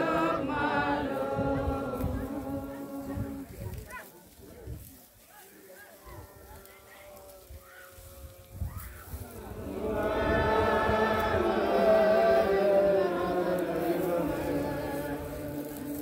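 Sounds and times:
crowd chanting in unison: 0.0s - 3.7s, 9.2s - 16.0s.

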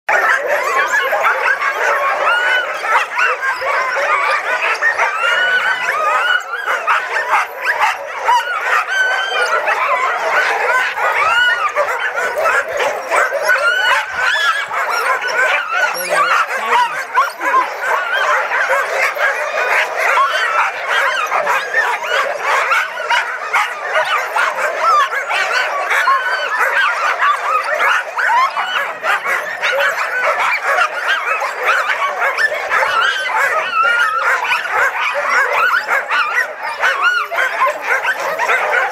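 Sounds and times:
sled dogs barking and yipping: 0.1s - 38.9s.

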